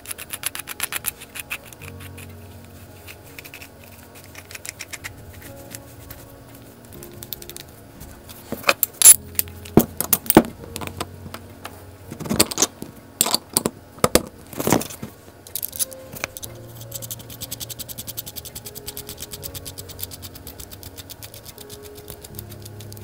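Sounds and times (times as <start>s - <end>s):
metal hub parts clinking: 8.5s - 11.1s, 12.2s - 17.8s.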